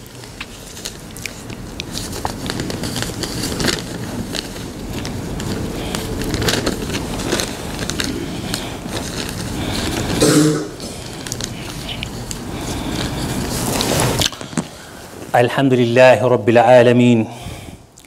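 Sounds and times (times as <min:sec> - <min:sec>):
congregation murmuring: 0:09.6 - 0:12.0
brief vocal sound: 0:10.2 - 0:10.9.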